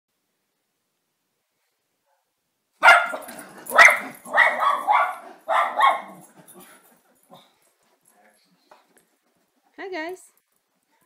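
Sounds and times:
dog barking: 0:02.8 - 0:06.8.

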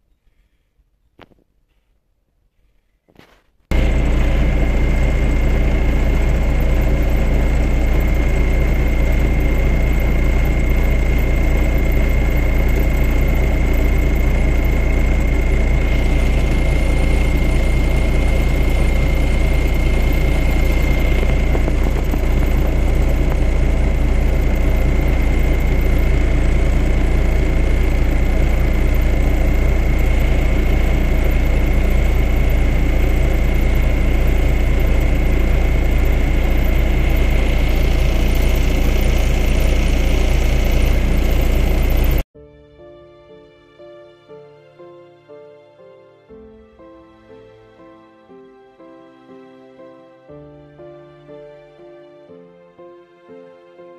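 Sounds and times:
high-pitched whine: 0:03.7 - 0:42.2
vehicle engine drone: 0:03.7 - 0:42.2.

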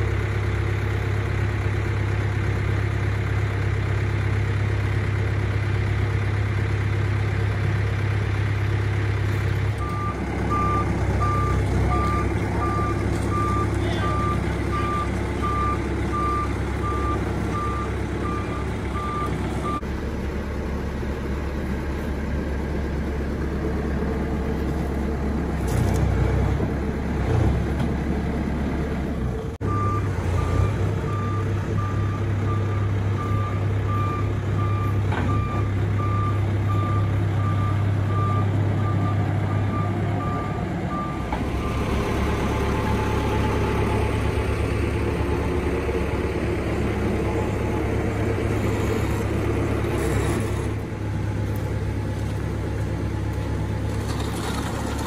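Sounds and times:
diesel engine running: 0:00.0 - 0:55.0
reverse alarm beeping: 0:09.8 - 0:19.8.

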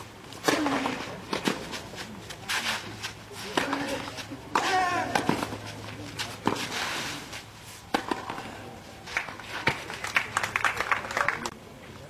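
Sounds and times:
light clapping: 0:09.1 - 0:11.6.

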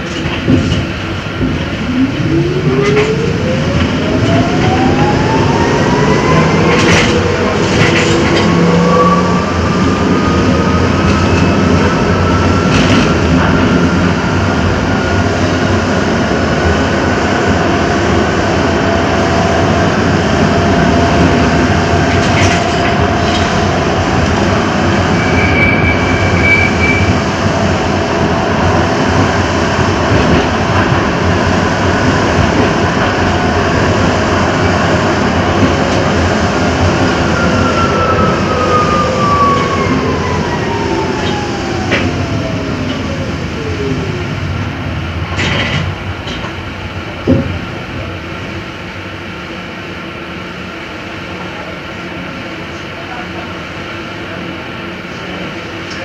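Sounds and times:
tram motor whine: 0:00.0 - 0:56.0
high squeal: 0:25.0 - 0:27.2.

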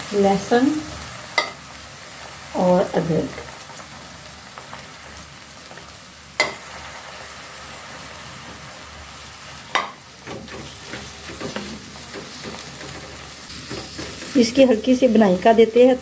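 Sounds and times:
vegetables sizzling in hot oil: 0:00.0 - 0:16.0
wooden spatula scraping pan: 0:10.2 - 0:15.2.

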